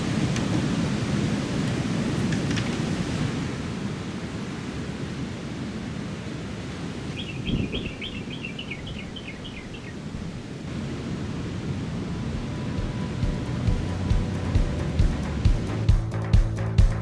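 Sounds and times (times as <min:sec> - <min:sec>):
wind on microphone: 0:00.0 - 0:15.9
ocean surf rushing: 0:00.0 - 0:16.1
bird chirping: 0:07.1 - 0:10.1.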